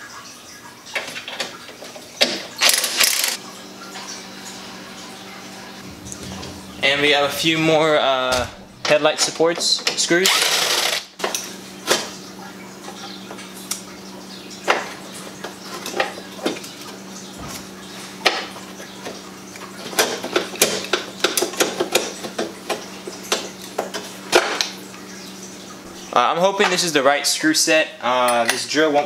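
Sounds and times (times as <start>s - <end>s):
low steady hum: 3.4s - 19.7s.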